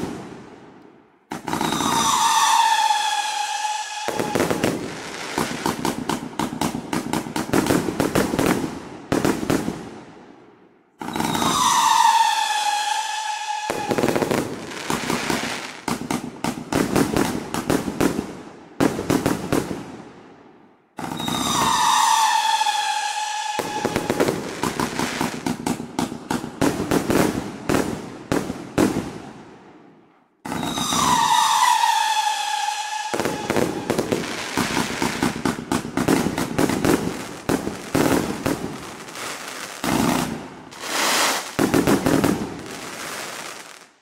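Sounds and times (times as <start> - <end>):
fireworks launches and crackling bursts: 0.0 - 44.0
firework whistle falling in pitch: 1.5 - 5.5, 11.0 - 15.5, 21.0 - 25.3, 30.5 - 35.0.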